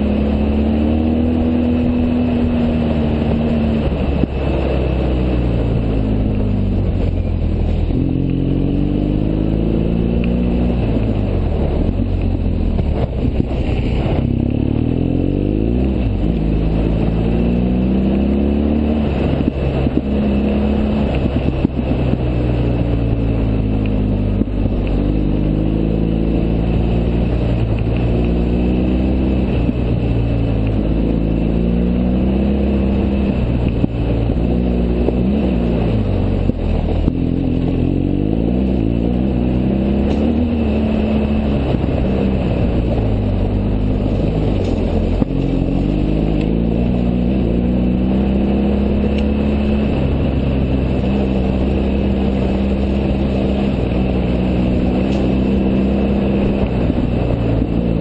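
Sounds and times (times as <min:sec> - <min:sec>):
motorcycle engine revving: 0:00.0 - 0:58.0
wind rush: 0:00.0 - 0:58.0.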